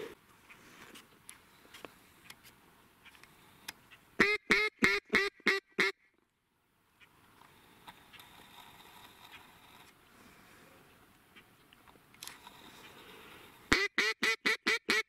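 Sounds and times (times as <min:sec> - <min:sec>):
duck quacks: 0:13.7 - 0:15.0.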